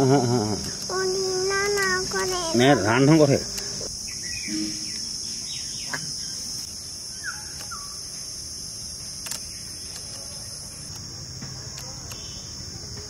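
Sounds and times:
insects buzzing: 0:00.0 - 0:13.0
bird chirps: 0:04.0 - 0:08.2.

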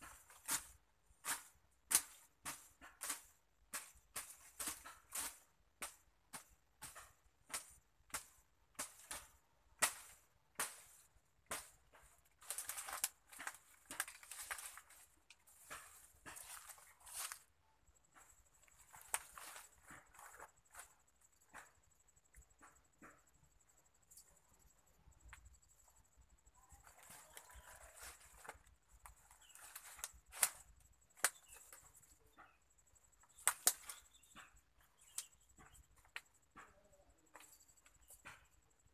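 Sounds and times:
machete chopping undergrowth: 0:00.0 - 0:17.4
stems crackling and rustling: 0:00.0 - 0:21.8, 0:26.6 - 0:38.6.

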